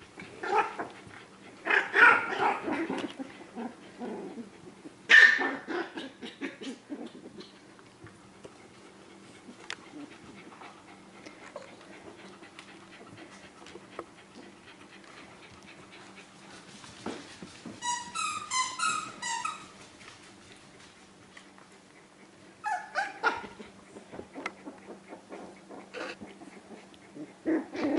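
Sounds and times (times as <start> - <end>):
paws scuffling on blanket: 8.0 - 18.0, 19.1 - 22.3
puppy squealing: 17.8 - 19.8, 22.6 - 23.4.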